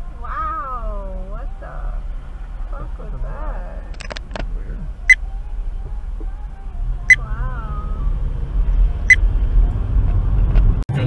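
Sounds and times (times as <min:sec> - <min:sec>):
car engine and road noise: 0:00.0 - 0:11.0
sharp clicks: 0:03.9 - 0:04.5.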